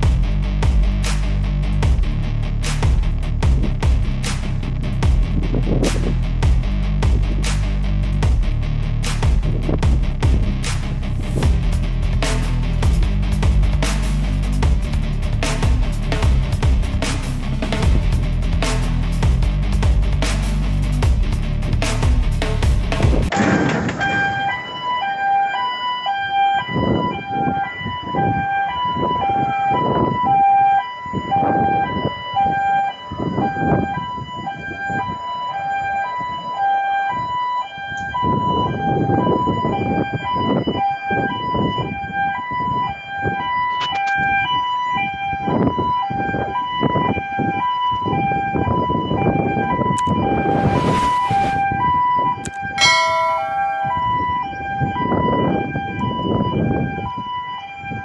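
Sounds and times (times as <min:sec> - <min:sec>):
two-tone warning alarm: 0:23.3 - 0:58.0.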